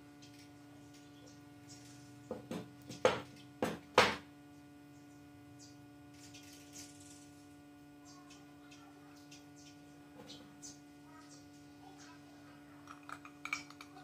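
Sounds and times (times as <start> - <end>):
steady low hum: 0.0 - 14.0
metal parts clinking and knocking: 12.8 - 14.0.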